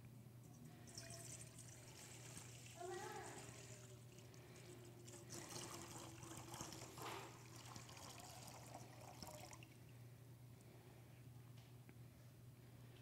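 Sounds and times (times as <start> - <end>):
water trickling into metal bowl: 0.5 - 10.0.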